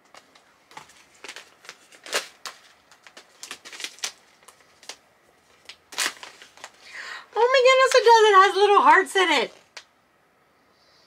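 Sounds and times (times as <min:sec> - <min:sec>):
tea pouch crinkling: 0:00.8 - 0:06.9.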